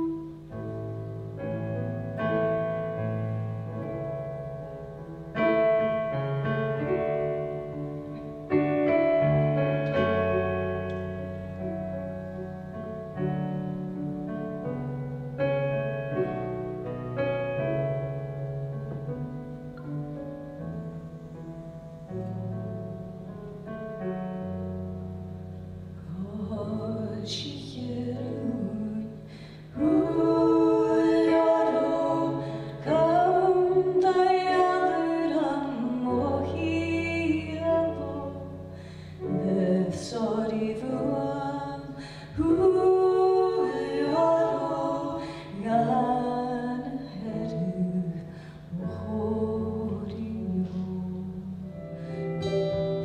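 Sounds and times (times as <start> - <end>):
keyboard notes: 0.0 - 53.0
low held bass tones: 0.0 - 53.0
person singing: 26.1 - 53.0.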